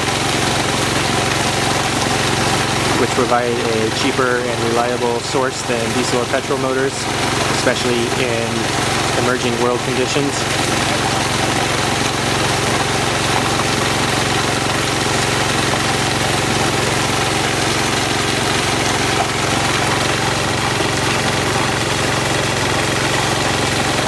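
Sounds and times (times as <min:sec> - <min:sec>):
water gushing onto concrete: 0:00.0 - 0:24.0
water pump and generator running: 0:00.0 - 0:24.0.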